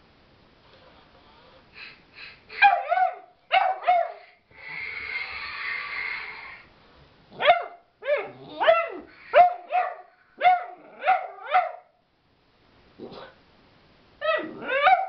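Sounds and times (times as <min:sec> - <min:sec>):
puppy barking: 0:02.6 - 0:04.4, 0:07.4 - 0:12.0, 0:14.2 - 0:15.0.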